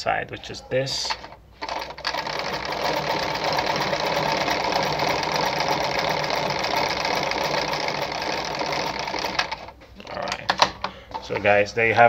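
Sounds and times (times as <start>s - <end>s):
sewing machine running: 1.6s - 9.8s.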